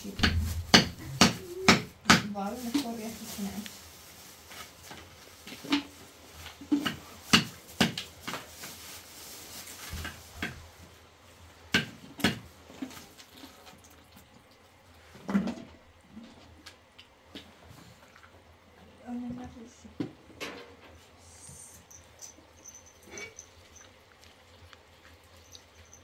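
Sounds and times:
objects knocking and clattering: 0:00.0 - 0:02.3
faint steady hiss: 0:00.0 - 0:26.0.

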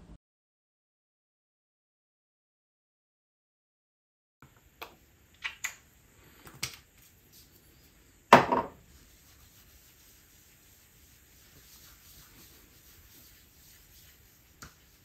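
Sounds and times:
fingertips rubbing on skin: 0:06.3 - 0:08.0, 0:08.9 - 0:15.0.

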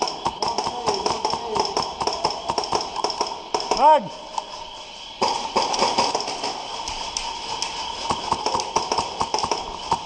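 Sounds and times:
airsoft guns firing: 0:00.0 - 0:04.0, 0:05.2 - 0:06.6, 0:08.0 - 0:10.0
pellets striking surfaces: 0:08.0 - 0:10.0.

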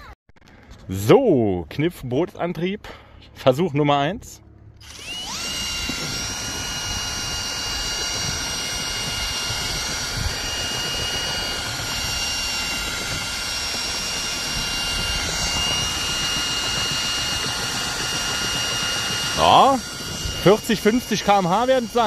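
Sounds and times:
wind: 0:00.0 - 0:22.0
cordless drill motor whine: 0:04.8 - 0:22.0.

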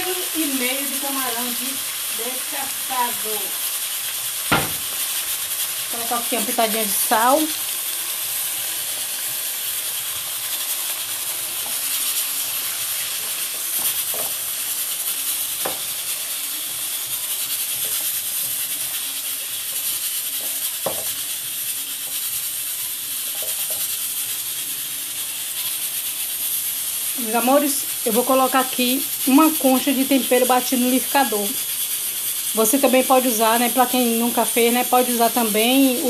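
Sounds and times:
shrimp sizzling in hot oil: 0:00.0 - 0:36.0
spatula scraping a wok: 0:08.3 - 0:26.9.

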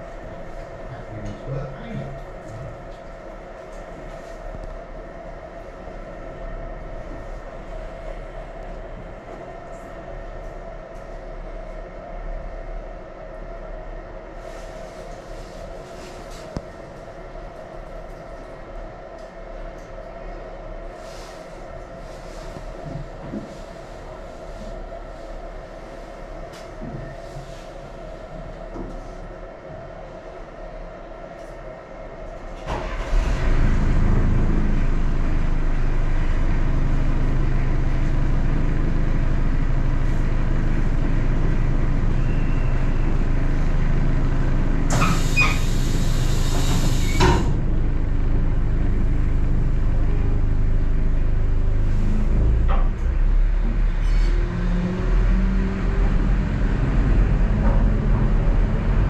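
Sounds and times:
train rumbling: 0:00.0 - 0:59.0.

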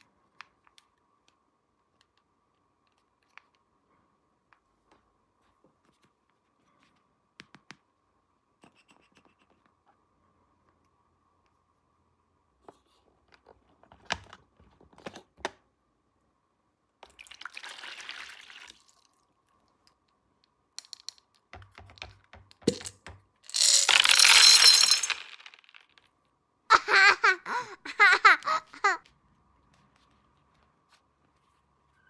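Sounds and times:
plastic toy pieces clicking: 0:20.8 - 0:26.0
plastic pieces rattling: 0:22.6 - 0:26.1
soft rustle: 0:29.1 - 0:32.0.

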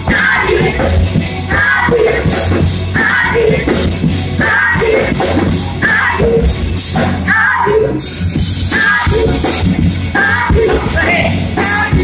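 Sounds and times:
live gospel music: 0:00.0 - 0:12.0
people singing and shouting: 0:00.0 - 0:12.0.

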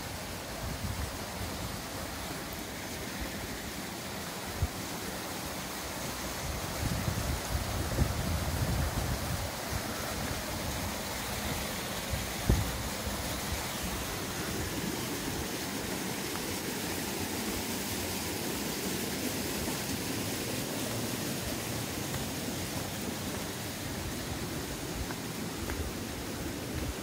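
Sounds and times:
flowing water rushing: 0:00.0 - 0:27.0
wind buffeting microphone: 0:06.4 - 0:11.0, 0:12.0 - 0:14.8.

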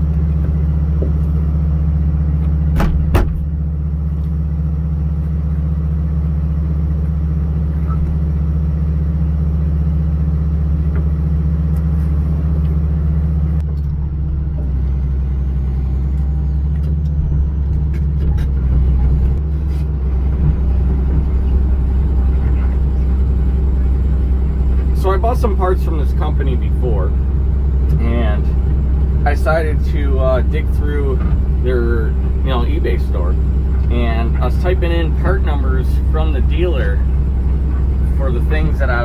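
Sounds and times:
excavator diesel engine running: 0:00.0 - 0:39.0.

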